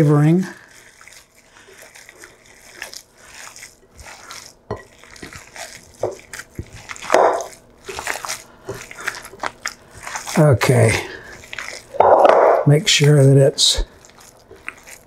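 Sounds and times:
hands squelching wet meat mixture: 0:00.0 - 0:15.0.

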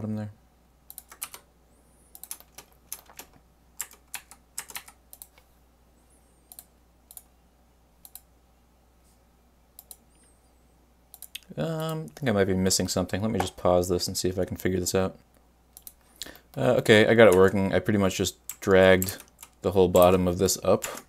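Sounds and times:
keyboard keys clicking: 0:00.9 - 0:01.4, 0:02.2 - 0:05.4.

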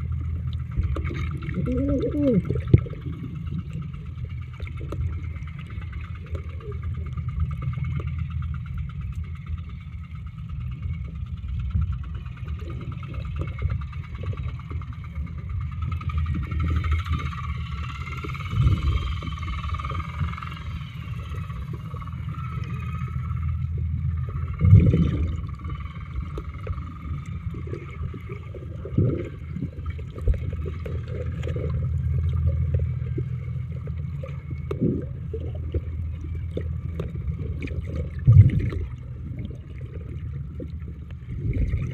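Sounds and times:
muffled engine drone underwater: 0:00.0 - 0:41.9.

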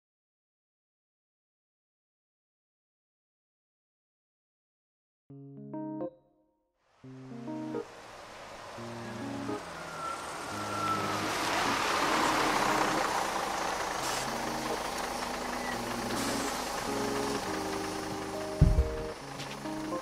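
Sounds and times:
soft keyboard chords: 0:05.3 - 0:07.9, 0:11.1 - 0:20.0
bus engine running: 0:07.5 - 0:20.0
loud low thump: 0:18.6 - 0:19.1.

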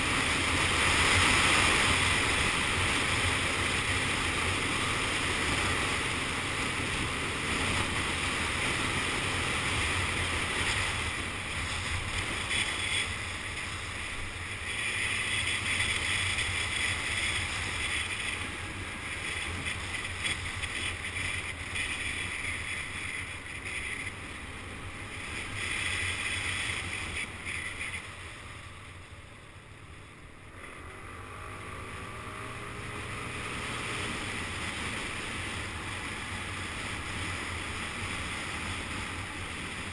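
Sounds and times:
scooter engine humming: 0:00.0 - 0:39.9.

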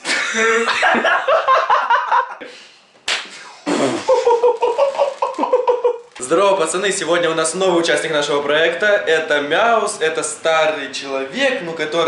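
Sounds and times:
people laughing: 0:00.0 - 0:02.4, 0:03.8 - 0:06.1
people talking: 0:00.1 - 0:01.0, 0:06.2 - 0:12.0
slap to the face: 0:03.0 - 0:03.4.

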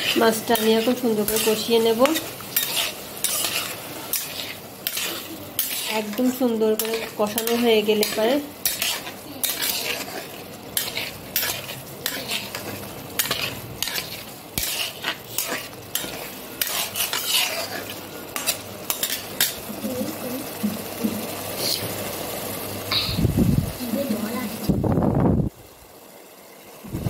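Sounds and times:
metal spatula scraping a pot: 0:00.0 - 0:19.6
frying sizzle: 0:00.0 - 0:27.0.

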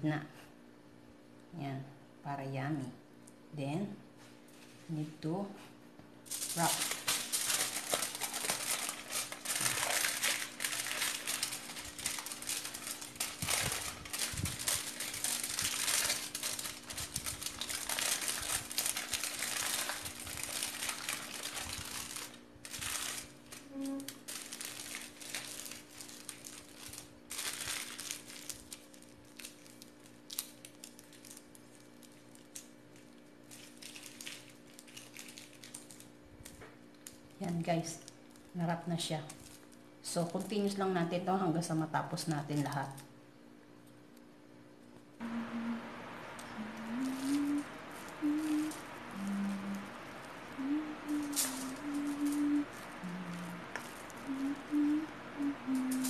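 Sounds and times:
aluminium foil crinkling: 0:06.3 - 0:41.0, 0:42.1 - 0:43.1, 0:45.2 - 0:56.0.

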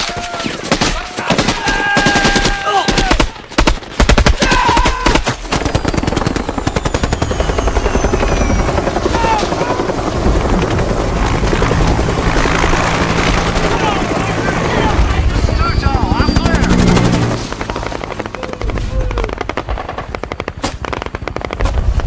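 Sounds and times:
rapid automatic gunfire: 0:00.4 - 0:22.0
helicopter rotor chop: 0:04.9 - 0:22.0
low engine hum: 0:10.2 - 0:20.2.

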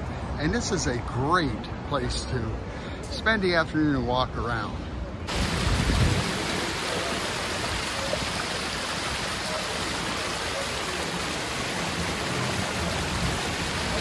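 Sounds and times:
water cascading over stone: 0:05.3 - 0:14.0.

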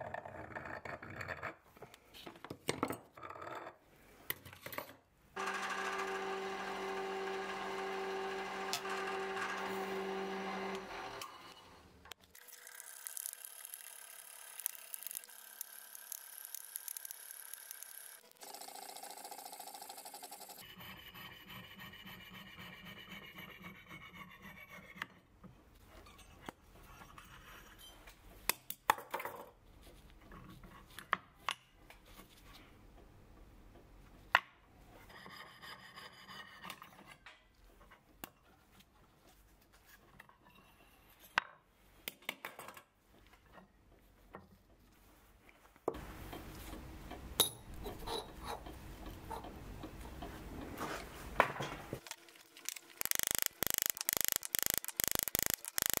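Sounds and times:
saw cutting through brass: 0:05.4 - 0:11.8
metal pieces clicking and knocking: 0:12.5 - 0:20.6, 0:52.0 - 0:56.0.

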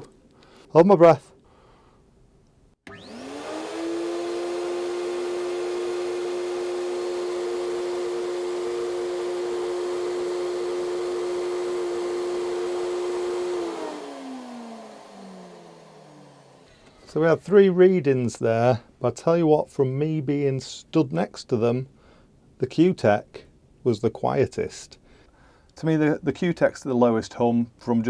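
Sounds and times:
paint sprayer turbine whining: 0:02.9 - 0:17.1.

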